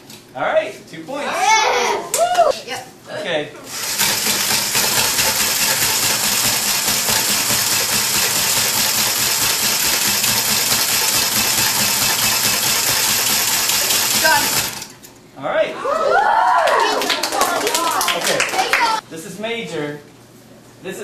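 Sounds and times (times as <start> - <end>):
cordless drill running: 3.7 - 14.9.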